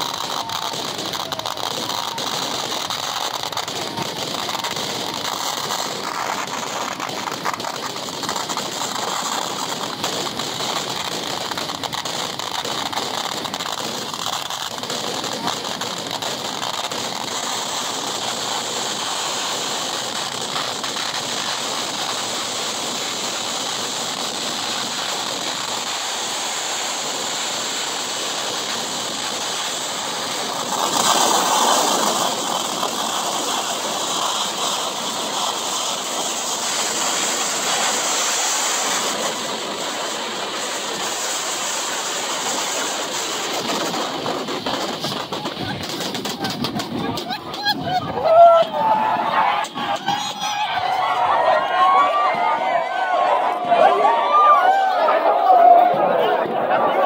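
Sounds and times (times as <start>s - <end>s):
firecracker barrage: 0.0s - 57.0s.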